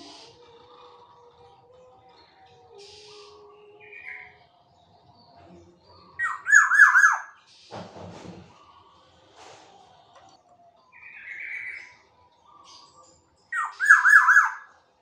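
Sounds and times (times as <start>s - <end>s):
oriole calling: 6.0s - 7.4s, 13.5s - 14.7s.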